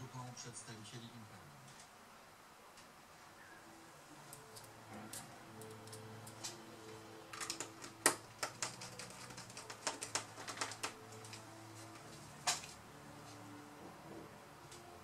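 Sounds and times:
laptop parts clicking and tapping: 7.3s - 11.4s.

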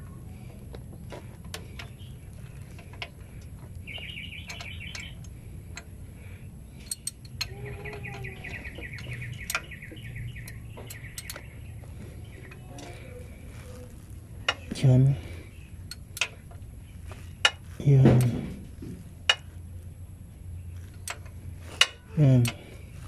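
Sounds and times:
ratchet clicking: 1.1s - 5.9s, 6.8s - 11.5s.

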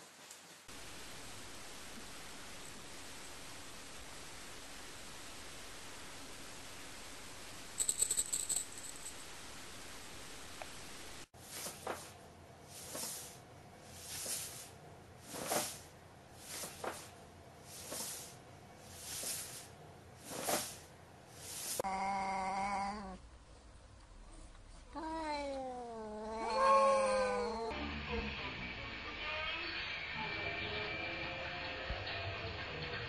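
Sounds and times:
cat yowling: 25.0s - 27.7s.

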